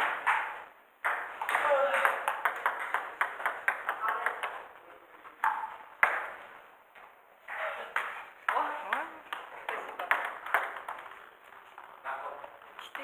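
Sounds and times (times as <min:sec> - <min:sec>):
table tennis ball hits: 0:00.0 - 0:06.6, 0:07.5 - 0:11.9.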